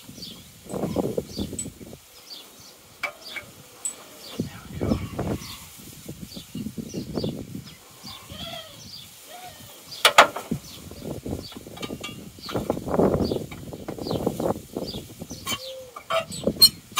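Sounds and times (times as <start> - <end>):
small birds chirping: 0.0 - 16.8
parts knocking and rustling: 10.0 - 10.6, 11.5 - 14.0.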